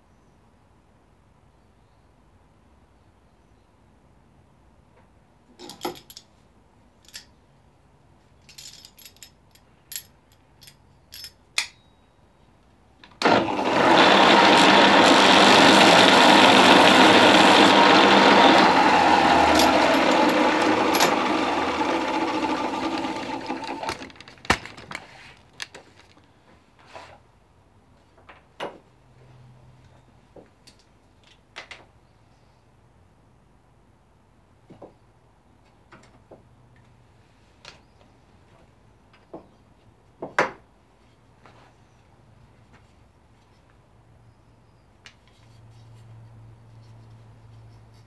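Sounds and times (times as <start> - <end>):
bench sander running: 13.2 - 24.1.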